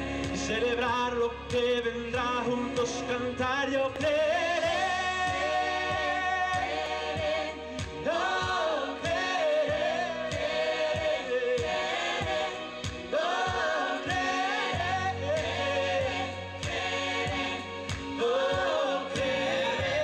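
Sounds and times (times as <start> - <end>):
backing track with steady beat: 0.0 - 20.0
group singing worship song: 0.0 - 20.0.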